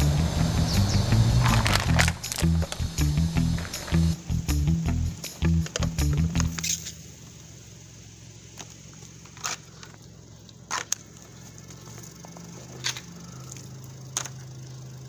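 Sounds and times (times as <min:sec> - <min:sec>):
steady low hum: 0:00.0 - 0:15.0
crushed cans clicking and crinkling: 0:01.4 - 0:02.8.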